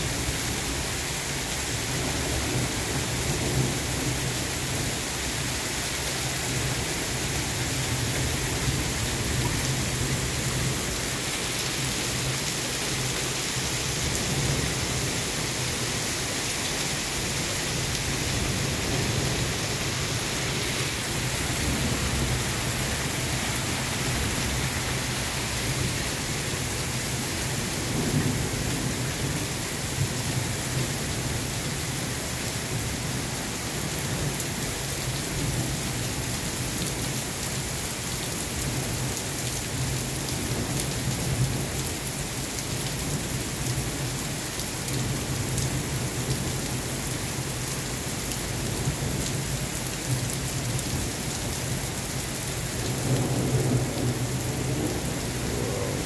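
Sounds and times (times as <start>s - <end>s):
heavy rain on pavement: 0.0s - 56.0s
thunder rumbling: 53.0s - 56.0s.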